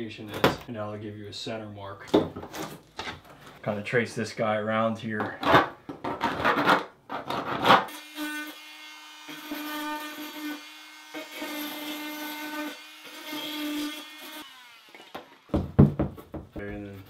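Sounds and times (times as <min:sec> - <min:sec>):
thump: 0:15.5 - 0:16.5.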